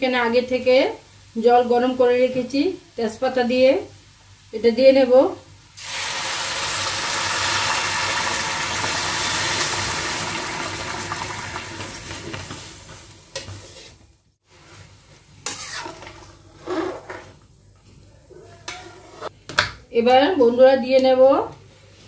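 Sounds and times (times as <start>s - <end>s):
water poured into hot pan sizzling: 5.8s - 12.5s.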